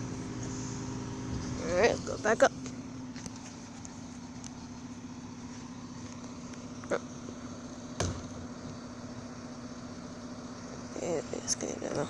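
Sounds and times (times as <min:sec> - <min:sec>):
garbage truck engine running: 0:00.0 - 0:12.0
sharp knock: 0:08.0 - 0:08.4.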